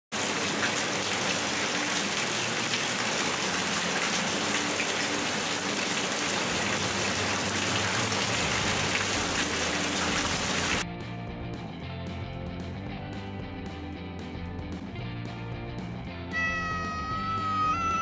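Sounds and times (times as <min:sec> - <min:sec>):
heavy rain hiss: 0:00.2 - 0:10.8.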